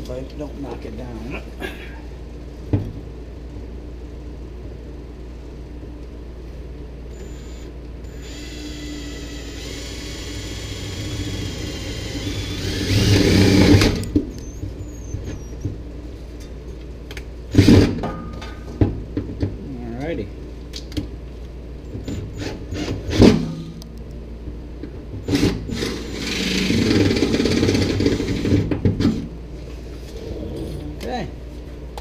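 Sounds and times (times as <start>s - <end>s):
cordless drill whining: 7.2s - 14.1s, 25.3s - 28.5s.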